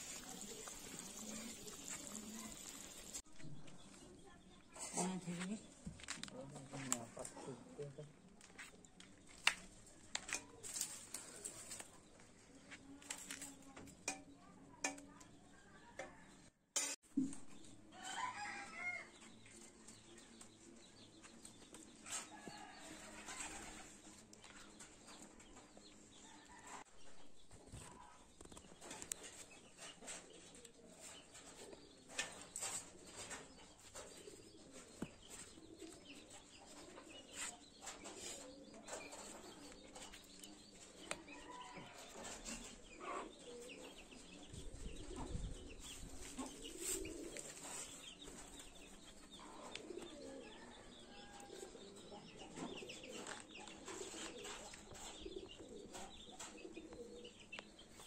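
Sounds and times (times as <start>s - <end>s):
birds calling: 32.4s - 58.0s.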